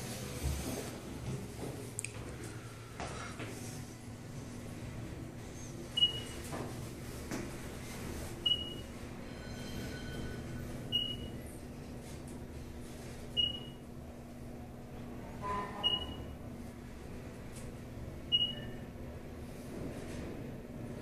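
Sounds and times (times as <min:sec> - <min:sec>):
steady low hum: 0:00.0 - 0:21.0
elevator short high beep: 0:06.0 - 0:06.4, 0:08.4 - 0:11.5, 0:13.4 - 0:13.8, 0:15.4 - 0:16.4, 0:18.3 - 0:18.9.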